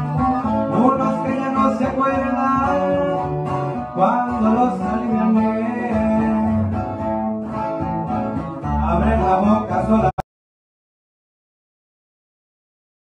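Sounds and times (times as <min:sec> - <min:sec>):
acoustic guitars strummed: 0:00.0 - 0:10.2
bass guitar line: 0:00.0 - 0:10.2.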